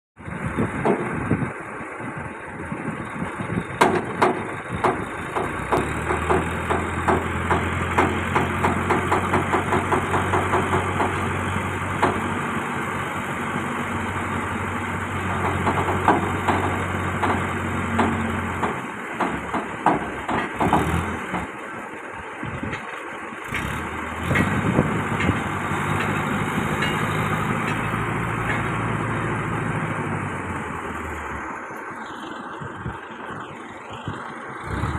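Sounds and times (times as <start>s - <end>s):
diesel engine running: 0.2s - 34.9s
sharp metal knocks and clanks: 0.8s - 1.2s, 3.8s - 12.3s, 15.3s - 21.6s, 22.6s - 29.0s.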